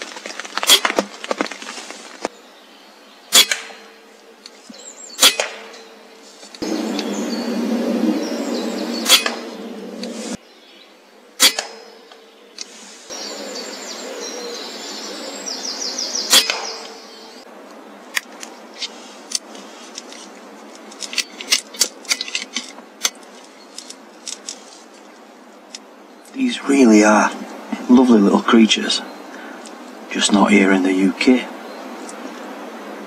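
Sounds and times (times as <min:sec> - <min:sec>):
air rifle shots: 0:03.3 - 0:04.0, 0:05.2 - 0:05.8, 0:09.0 - 0:09.6, 0:11.4 - 0:12.0, 0:16.3 - 0:17.1.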